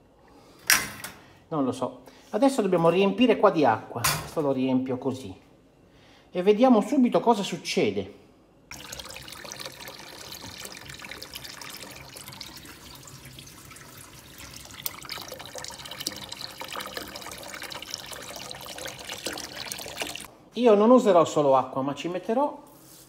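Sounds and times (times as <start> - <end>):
water splashing into metal tank: 8.7 - 20.3.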